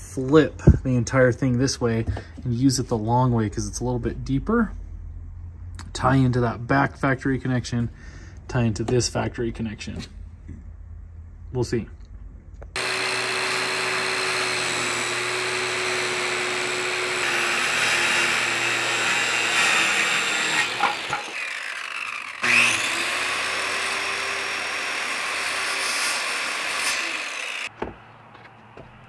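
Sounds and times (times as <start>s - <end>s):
circular saw cutting wood: 12.8s - 27.7s.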